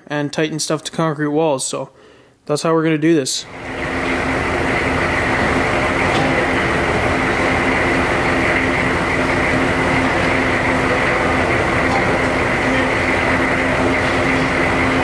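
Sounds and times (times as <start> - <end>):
machinery humming: 3.4 - 15.0.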